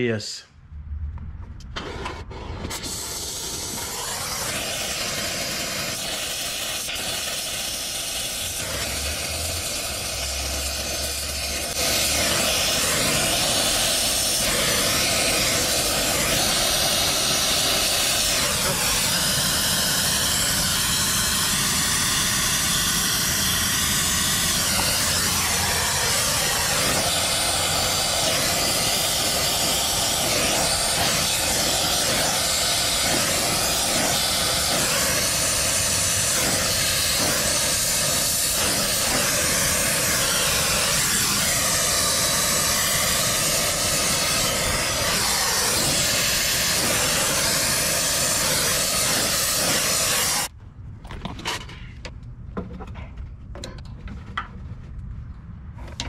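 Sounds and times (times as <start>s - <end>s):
torch flame hissing: 1.8s - 50.5s.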